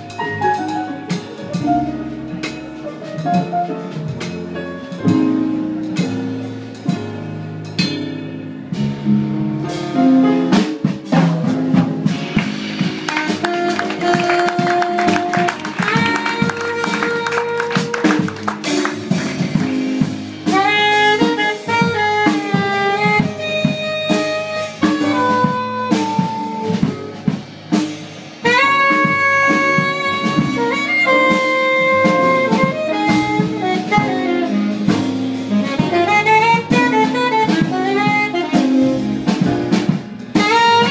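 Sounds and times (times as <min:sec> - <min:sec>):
drum kit: 0:00.0 - 0:40.9
saxophone solo: 0:12.6 - 0:27.8, 0:28.4 - 0:40.9.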